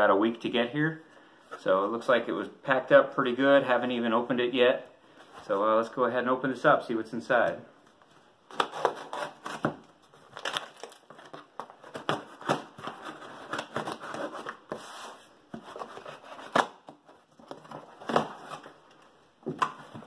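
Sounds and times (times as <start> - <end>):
cardboard rustling: 8.0 - 20.0
packing tape ripping: 8.5 - 14.6.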